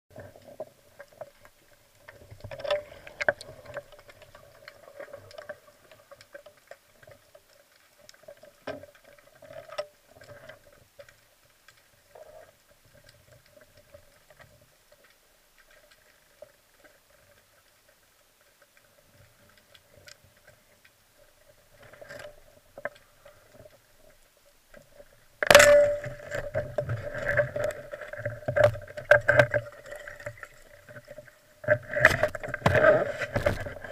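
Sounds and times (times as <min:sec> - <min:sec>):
rushing water with rumbling: 0:00.1 - 0:33.9
underwater clicks and knocks: 0:00.2 - 0:06.8, 0:24.7 - 0:33.9.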